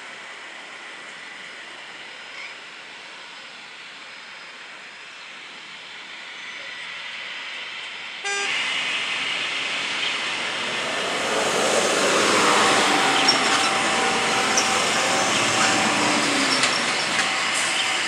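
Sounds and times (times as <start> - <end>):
thin steady whine: 4.0 - 18.0
helicopter engine and rotor roar: 8.5 - 18.0.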